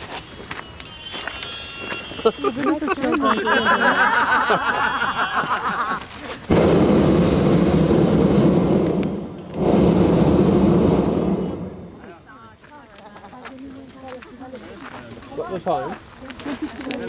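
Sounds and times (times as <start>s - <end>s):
voices chattering: 0.2s - 6.5s, 11.5s - 17.0s
propane burner roaring: 6.5s - 12.2s.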